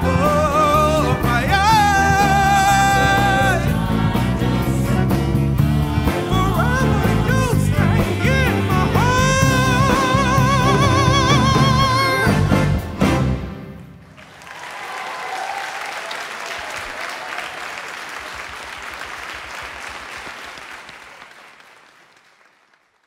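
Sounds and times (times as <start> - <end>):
band with strings and horns: 0.0 - 14.4
audience applause: 14.0 - 23.0.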